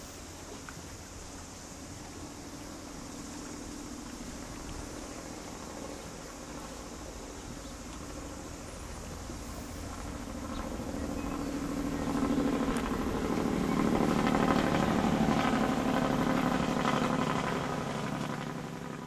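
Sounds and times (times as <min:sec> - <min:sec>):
motor engine droning: 0:00.0 - 0:19.0.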